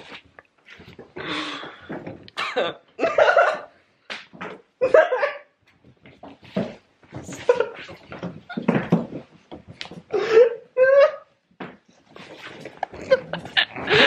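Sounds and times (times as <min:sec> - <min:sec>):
bumps and rustling of scuffle: 0:05.8 - 0:10.2, 0:11.6 - 0:14.0.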